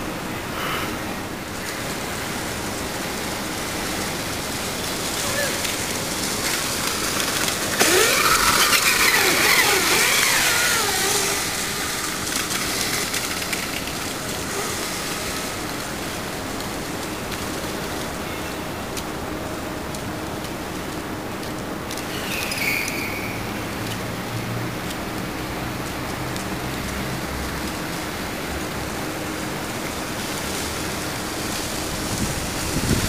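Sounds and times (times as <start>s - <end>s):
steady background hiss: 0.0s - 33.0s
tyres hissing on wet pavement: 0.0s - 33.0s
electric motor whine: 6.6s - 13.1s.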